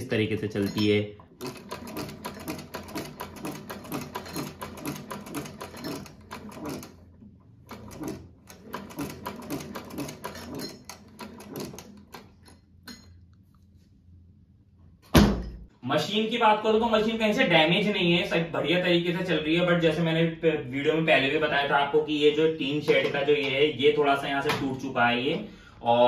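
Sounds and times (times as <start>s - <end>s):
sewing machine clattering: 0.4s - 12.7s.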